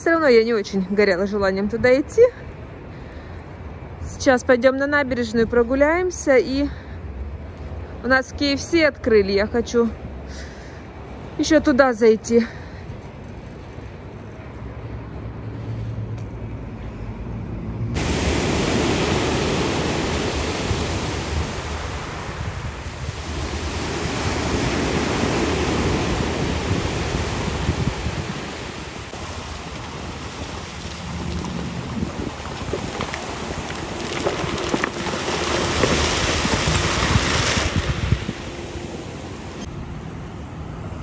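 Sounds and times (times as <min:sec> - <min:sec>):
wind: 0:00.0 - 0:41.0
wind buffeting microphone: 0:17.9 - 0:39.7
sea surf: 0:18.0 - 0:39.7.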